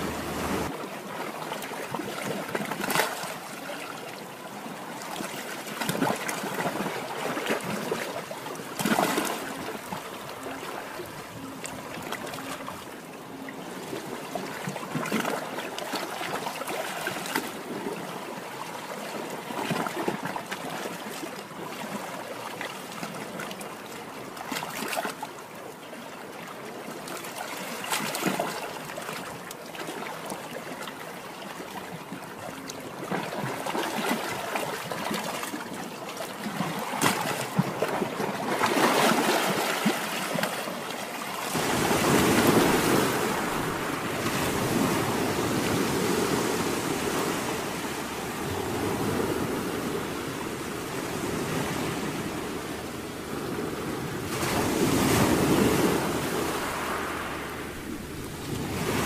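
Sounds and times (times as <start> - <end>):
small waves washing on shore: 0.0 - 59.0.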